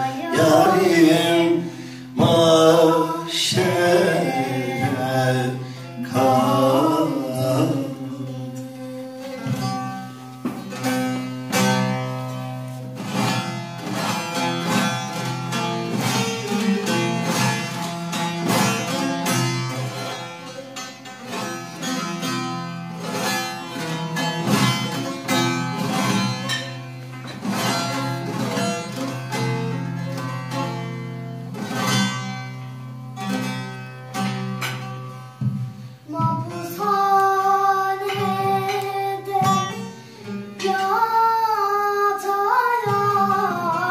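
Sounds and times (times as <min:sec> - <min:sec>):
girl singing: 0:00.0 - 0:01.6, 0:02.2 - 0:10.8, 0:15.8 - 0:17.9, 0:36.1 - 0:43.9
plucked long-necked lute: 0:00.0 - 0:43.9.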